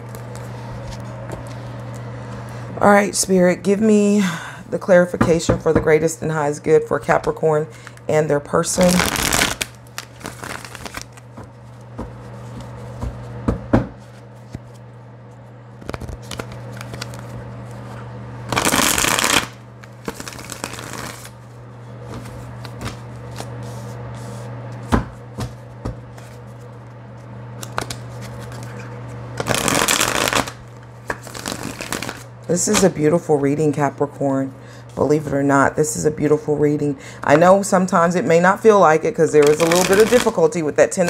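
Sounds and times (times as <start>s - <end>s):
cards being shuffled: 8.8s - 13.3s, 15.8s - 17.9s, 18.5s - 21.4s, 22.1s - 32.8s, 39.4s - 40.4s.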